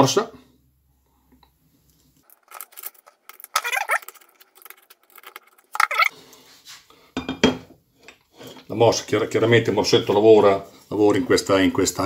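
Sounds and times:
metal parts clattering: 0:02.2 - 0:06.1
steel parts clinking and scraping: 0:02.2 - 0:06.1.

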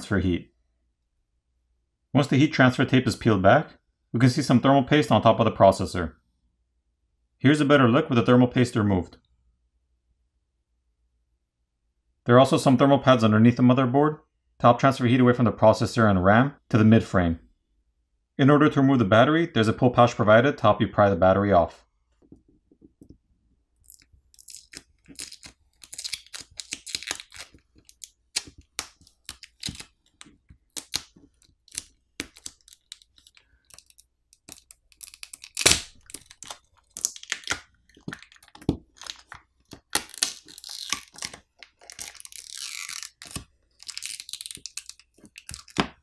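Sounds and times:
battery adhesive tearing: 0:23.8 - 0:45.9.

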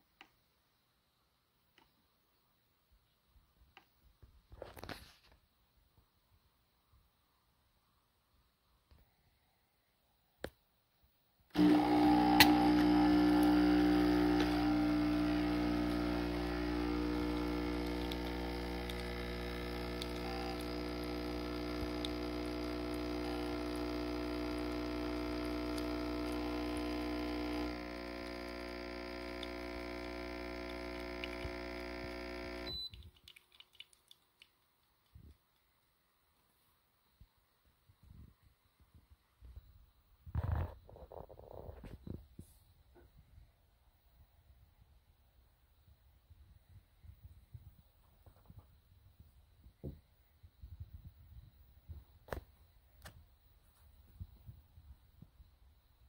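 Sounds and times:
espresso machine pump buzzing: 0:11.6 - 0:32.9
faint drips: 0:12.4 - 0:19.1, 0:32.6 - 0:35.6.

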